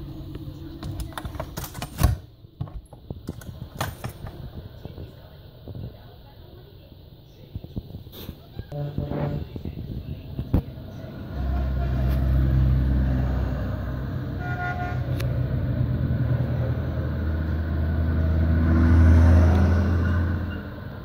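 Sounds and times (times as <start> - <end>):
truck horn toot: 8.7 - 9.5, 11.2 - 12.9, 14.1 - 15.4
truck engine driving past: 10.4 - 21.0.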